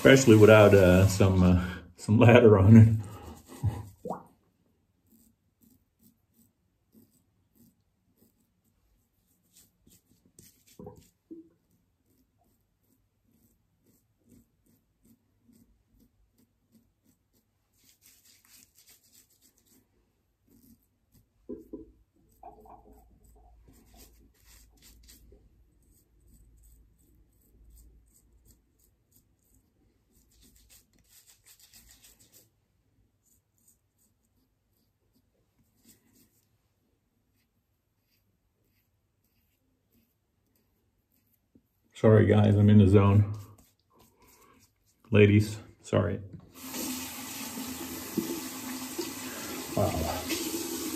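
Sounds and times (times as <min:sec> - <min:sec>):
razor scraping stubble: 0:00.0 - 0:01.5, 0:05.0 - 0:11.2, 0:12.0 - 0:19.8, 0:20.4 - 0:32.5.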